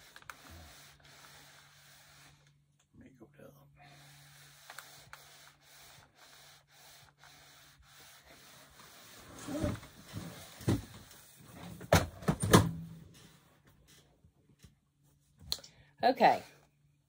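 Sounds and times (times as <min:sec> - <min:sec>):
steam iron rubbing over fabric: 0:00.0 - 0:02.6, 0:03.8 - 0:11.6.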